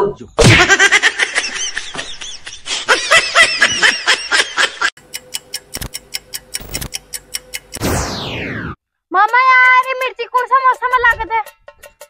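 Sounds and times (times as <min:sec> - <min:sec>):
laughter: 0:00.4 - 0:05.0
countdown ticks over steady tone: 0:05.0 - 0:08.7.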